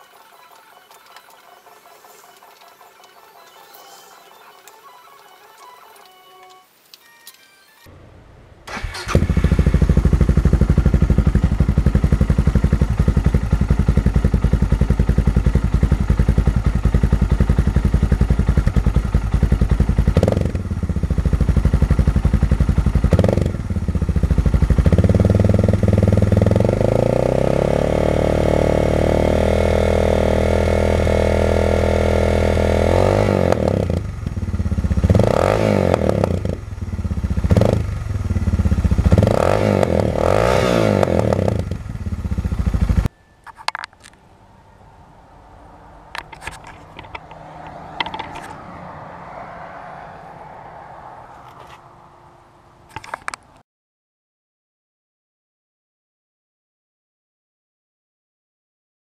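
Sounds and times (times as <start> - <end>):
motorcycle engine revving: 0.0 - 6.2, 8.0 - 43.1, 46.1 - 50.6.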